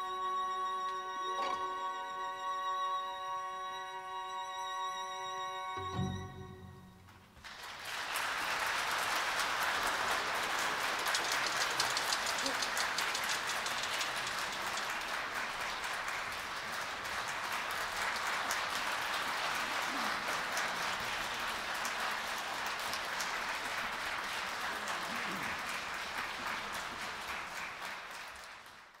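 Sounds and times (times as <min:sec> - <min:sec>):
audience applauding: 0:07.0 - 0:29.0.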